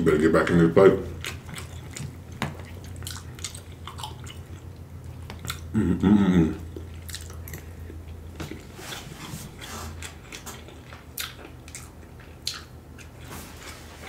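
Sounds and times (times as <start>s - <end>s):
chewing and wet mouth clicks: 1.2s - 5.7s, 6.6s - 8.7s, 10.0s - 13.2s
man humming: 5.7s - 6.7s.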